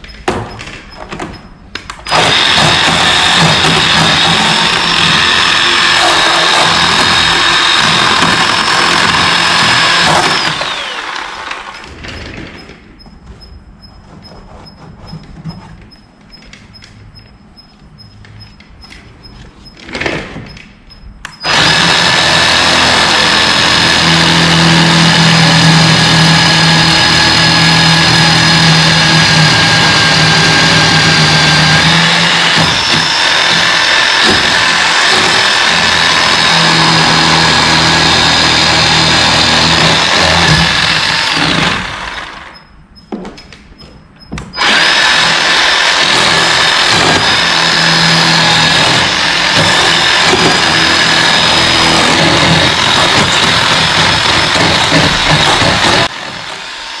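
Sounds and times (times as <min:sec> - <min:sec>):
electric chainsaw whining: 0:02.0 - 0:12.0, 0:21.4 - 0:42.6, 0:44.6 - 0:57.0.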